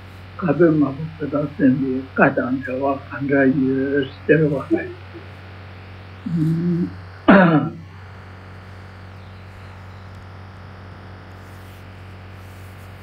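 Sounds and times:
faint recording hiss: 0.0 - 13.0
low electrical hum: 0.0 - 13.0
man humming: 0.4 - 5.3, 6.2 - 7.9
man clearing his throat: 6.3 - 7.8.

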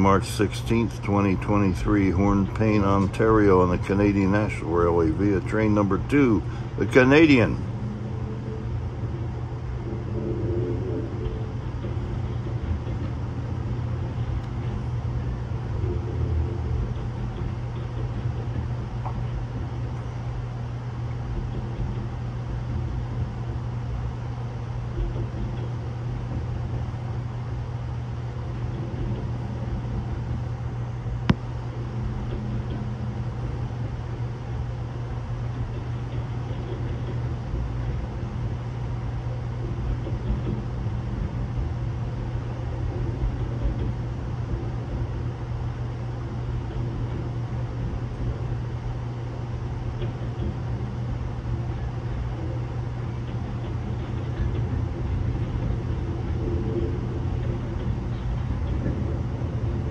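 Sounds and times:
freight train rumbling past: 0.0 - 23.6.

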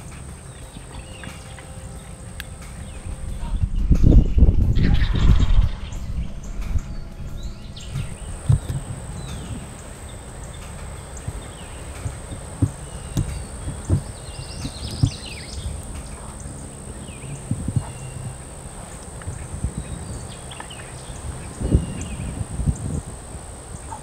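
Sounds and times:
high insect-like whine: 0.0 - 24.0
low rumble: 0.0 - 24.0
songbird chirps: 0.0 - 24.0
soft low thumps: 2.8 - 16.6.

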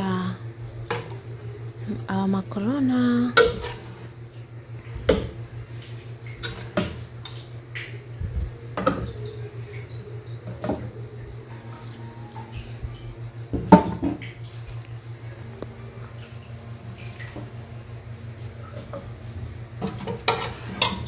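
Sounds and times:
steady low hum: 0.0 - 21.0.

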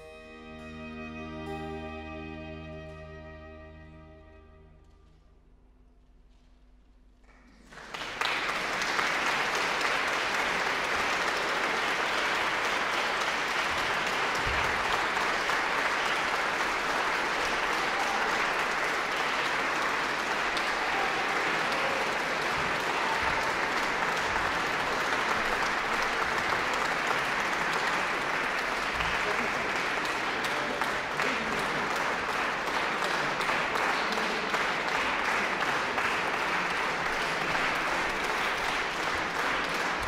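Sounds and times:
audience applause: 7.3 - 40.0.

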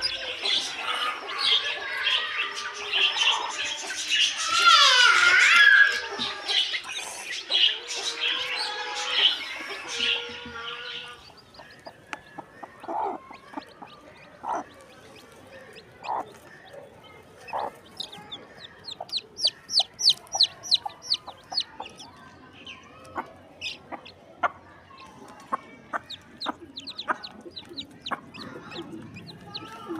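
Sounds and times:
chicks peeping: 0.0 - 29.9
hen clucking: 6.0 - 29.9.

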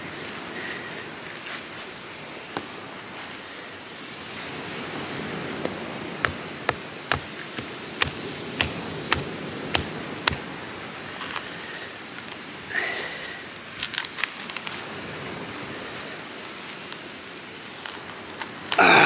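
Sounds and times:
coconut husk cracking: 5.4 - 11.6, 12.2 - 15.0, 16.2 - 19.0.

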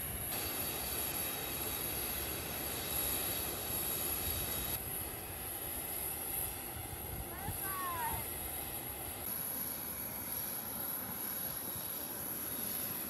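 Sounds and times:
jet aircraft rumble: 0.0 - 13.0.

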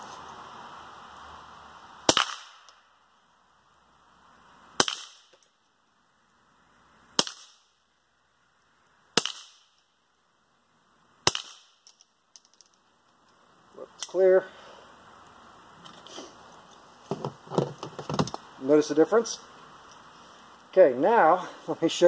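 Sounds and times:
suppressed pistol shots: 2.1 - 2.8, 4.8 - 5.4, 7.2 - 7.6, 9.2 - 9.8, 11.2 - 11.8.

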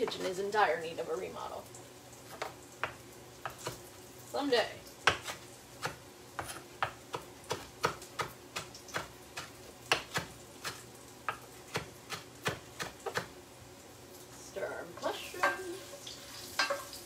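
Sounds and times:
knife chopping on wooden board: 5.1 - 13.3.

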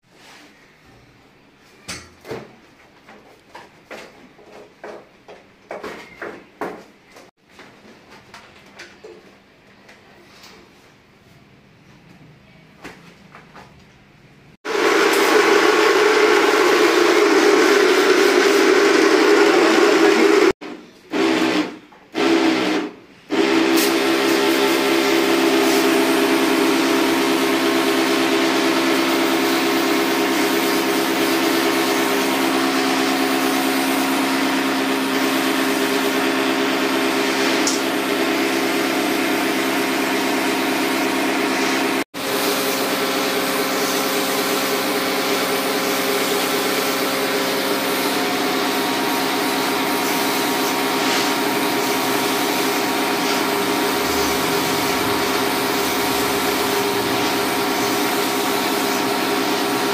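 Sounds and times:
pressure washer motor hum: 14.6 - 20.6, 22.2 - 59.9
water spray hissing: 45.8 - 59.9.

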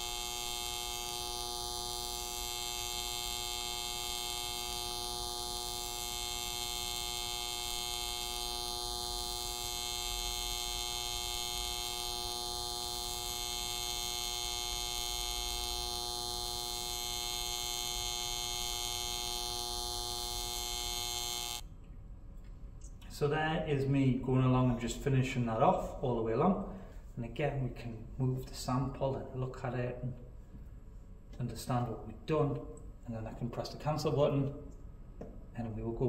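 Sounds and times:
welding arc buzz with high whine: 0.0 - 21.7.

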